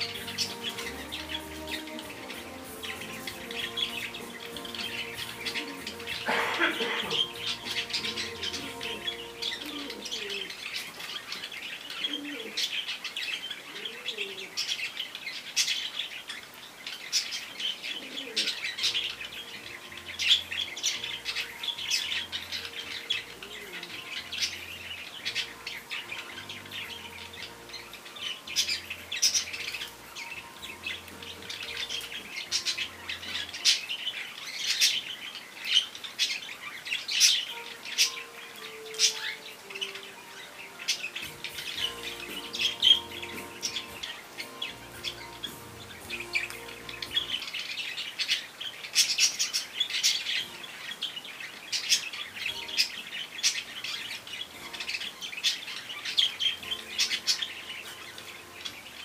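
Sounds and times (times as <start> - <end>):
small birds chirping: 0.0 - 59.0.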